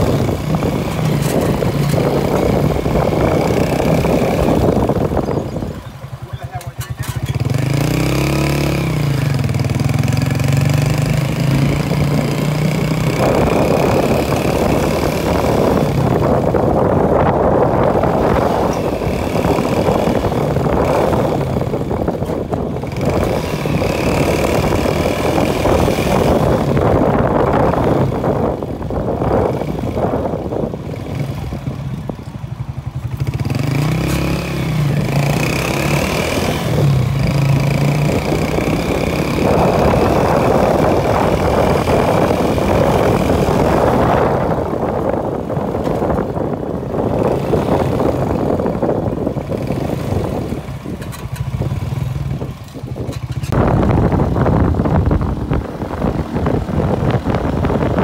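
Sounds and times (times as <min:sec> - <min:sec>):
motorbike engine: 0:00.0 - 0:58.0
wind and road noise: 0:00.0 - 0:58.0.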